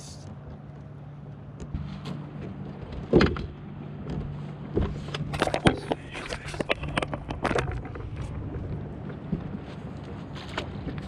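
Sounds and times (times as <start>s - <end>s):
boat motor humming: 0.0s - 11.0s
fishing gear knocking against boat: 1.6s - 9.6s.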